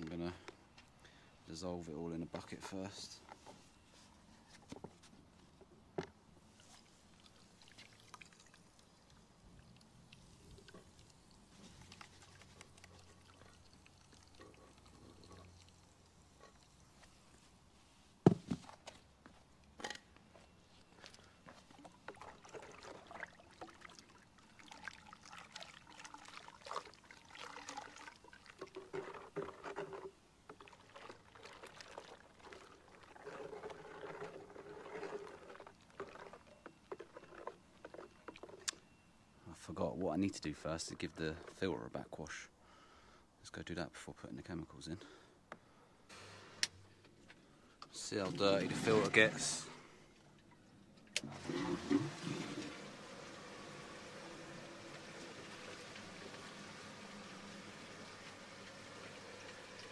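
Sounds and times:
water sloshing and churning: 6.4 - 17.3, 21.0 - 39.0, 48.0 - 49.6, 51.2 - 59.9.

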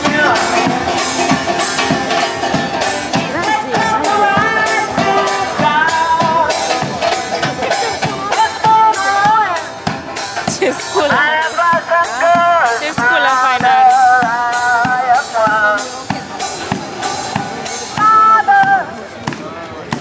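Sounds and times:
wavering lead melody: 0.0 - 9.8
banjo playing: 0.0 - 20.0
steady bass drum beat: 0.0 - 20.0.

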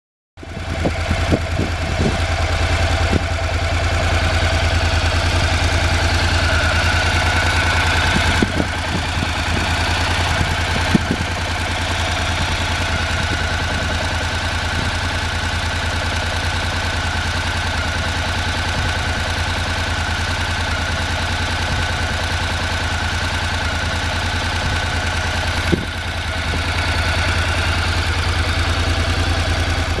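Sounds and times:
motorcycle engine idling: 0.4 - 30.0.

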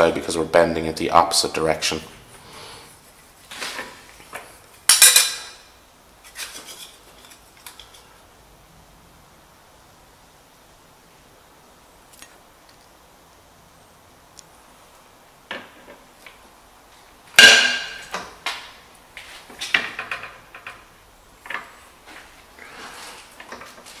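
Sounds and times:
metal clinks and knocks: 4.9 - 5.6
metallic clang: 4.9 - 5.7, 17.4 - 18.3.

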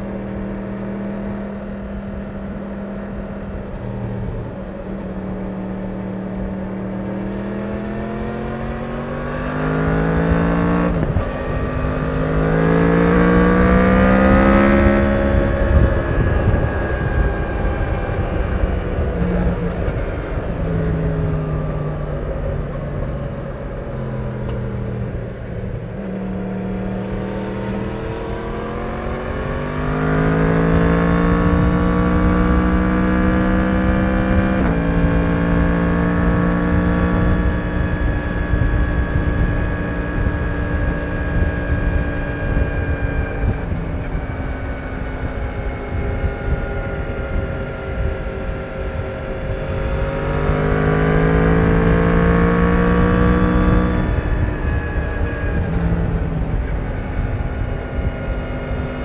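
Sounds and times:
motorcycle engine accelerating: 0.0 - 59.0.

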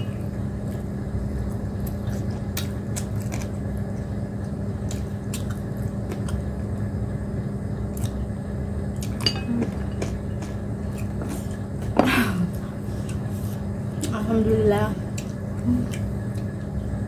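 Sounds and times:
steady low hum: 0.0 - 17.0
soft chewing: 0.5 - 6.5, 12.5 - 14.2.

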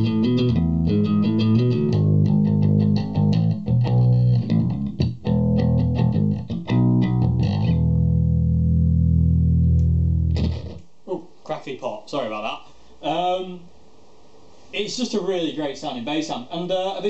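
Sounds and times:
electric bass plucked notes: 0.0 - 10.8.

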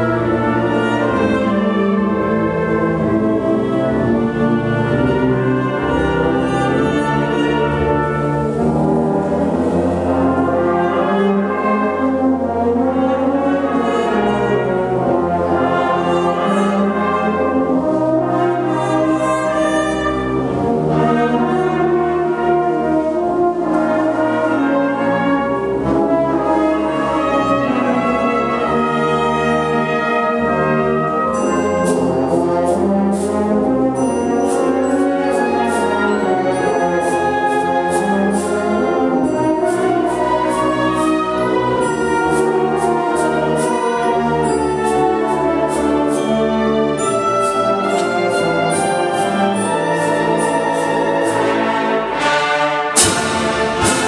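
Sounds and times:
wind band playing: 0.0 - 54.0
fast percussion beat: 53.0 - 54.0.

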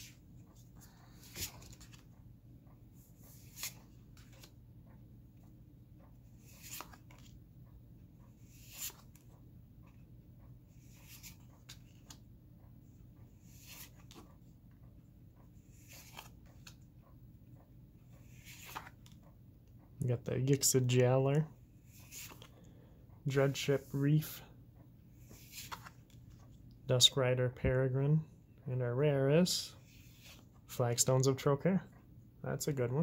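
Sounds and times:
cards swishing against each other: 0.0 - 2.1, 3.1 - 4.6, 6.3 - 7.4, 8.4 - 9.3, 10.8 - 12.2, 13.4 - 14.3, 15.7 - 16.8, 18.2 - 19.1, 21.8 - 22.5, 25.2 - 26.4
low steady hum: 0.0 - 33.0.

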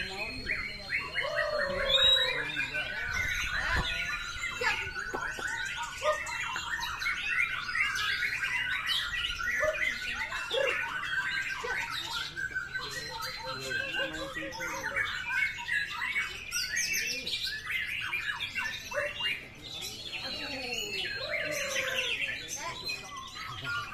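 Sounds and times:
birds singing rapid whistles: 0.0 - 23.9.

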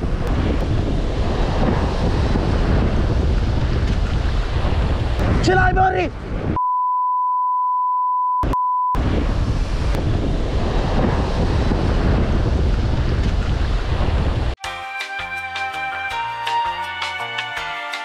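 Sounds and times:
surf breaking on rocks: 0.0 - 5.9, 9.0 - 14.6
wind buffeting microphone: 0.0 - 6.6, 9.0 - 14.6
censor beep: 6.6 - 9.0
music: 14.6 - 18.0.

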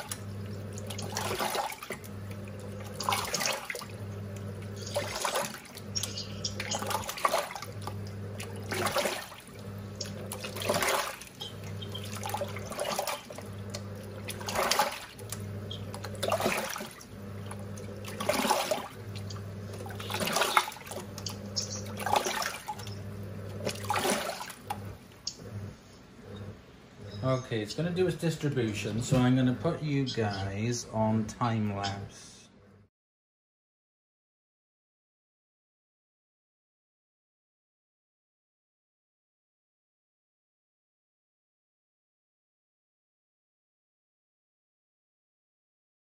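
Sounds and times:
water sloshing in drum: 0.0 - 25.7
washing machine motor humming: 0.0 - 32.9.

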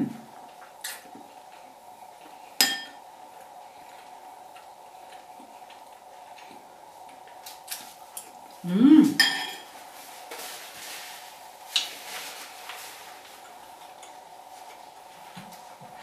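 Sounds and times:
paper napkin rustling: 9.6 - 13.8.

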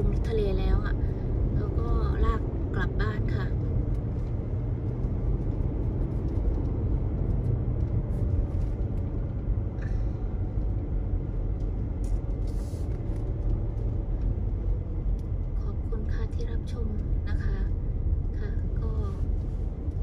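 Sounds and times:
car interior road noise: 0.0 - 20.0.

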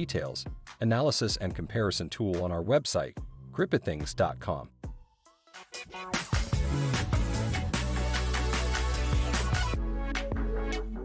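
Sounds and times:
electronic beat with deep bass: 5.8 - 11.0
synth chords: 5.8 - 11.0.

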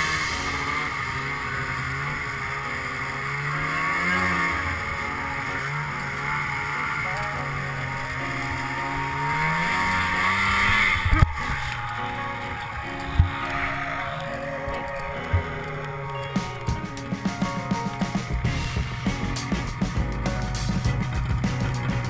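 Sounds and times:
background music: 0.0 - 22.0
snowmobile engine running: 0.0 - 22.0
steady hiss: 0.0 - 22.0
loud thumps: 16.4 - 22.0.

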